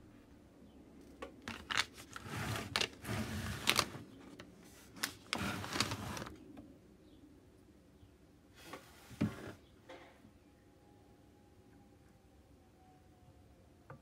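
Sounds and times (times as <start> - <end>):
rubbing and scraping: 1.5 - 6.4.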